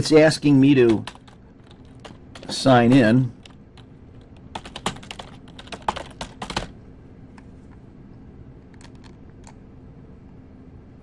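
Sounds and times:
computer keyboard typing: 0.7 - 6.8, 8.7 - 9.6.

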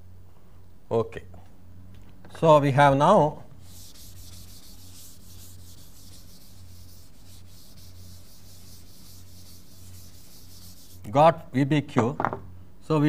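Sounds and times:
low electrical hum: 0.0 - 13.0
duster rubbing on chalkboard: 3.6 - 11.2.

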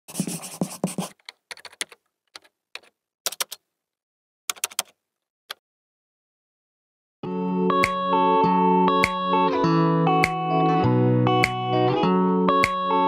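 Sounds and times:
keyboard typing clicks: 1.3 - 3.6, 4.5 - 5.0.

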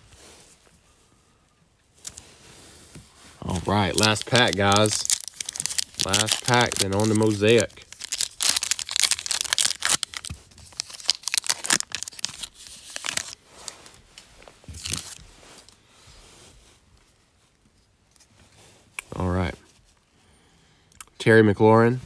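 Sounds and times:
crinkly wrapper being torn open: 3.5 - 13.4, 14.7 - 15.2.

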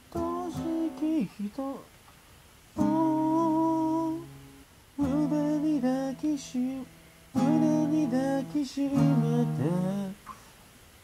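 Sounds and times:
acoustic guitar strumming: 0.0 - 1.8, 2.8 - 10.5
man singing: 0.0 - 1.9, 2.8 - 4.4, 5.0 - 10.3.

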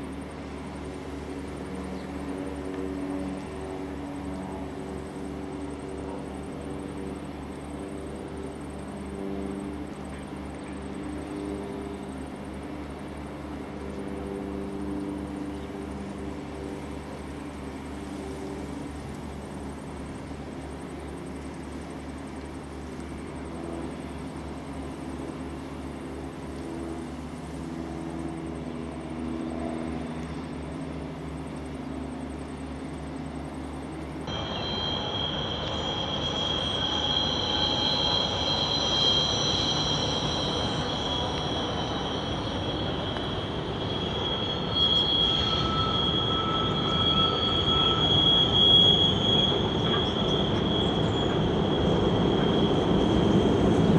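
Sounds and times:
train rumble: 0.0 - 53.9
train wheels squealing: 0.1 - 53.9
low hum: 29.6 - 53.9.

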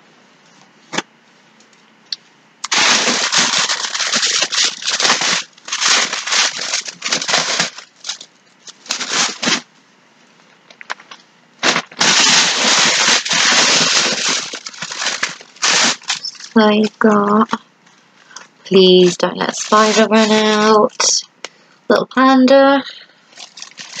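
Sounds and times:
bag rustling and crinkling: 2.6 - 9.7, 11.6 - 17.2, 18.7 - 20.8, 23.3 - 24.0.

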